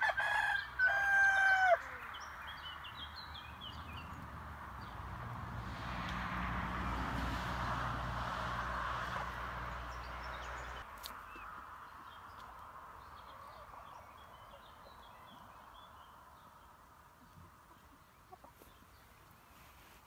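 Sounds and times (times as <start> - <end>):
passing vehicle: 2.0 - 10.9.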